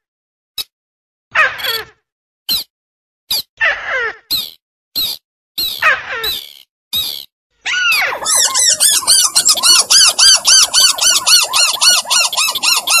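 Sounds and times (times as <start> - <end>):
bird call chatter: 7.9 - 13.0.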